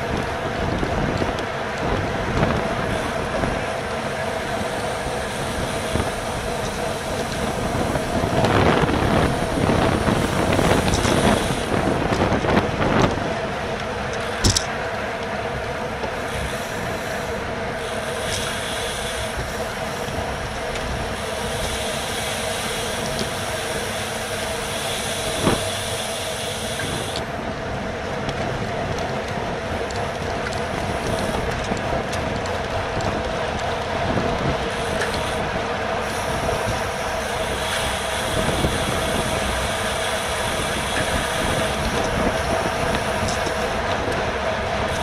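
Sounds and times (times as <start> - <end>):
wind rush: 0.0 - 14.7, 15.8 - 25.9, 26.8 - 45.0
steady hum: 0.0 - 45.0
tyre-on-road noise: 0.0 - 45.0.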